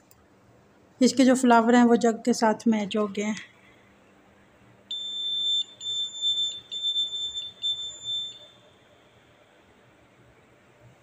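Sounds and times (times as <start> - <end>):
high electronic beep tone: 4.9 - 8.7.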